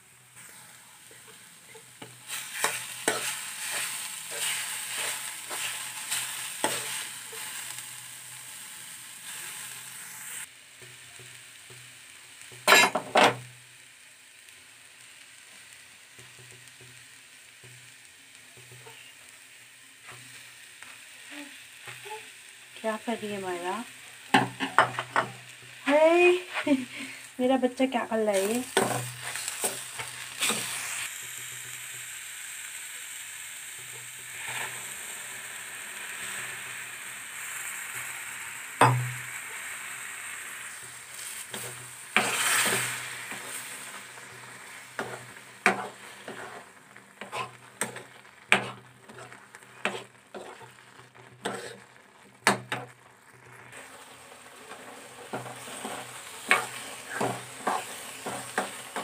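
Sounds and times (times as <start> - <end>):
food sizzling in metal pan: 0.0 - 59.0
steel ladle scraping pan: 1.7 - 7.5, 41.2 - 52.9, 54.6 - 59.0.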